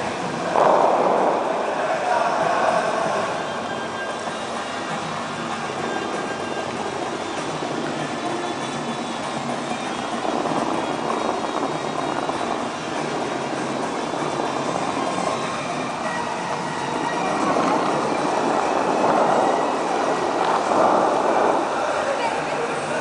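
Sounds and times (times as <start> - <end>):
fountain water jets rushing: 0.0 - 23.0.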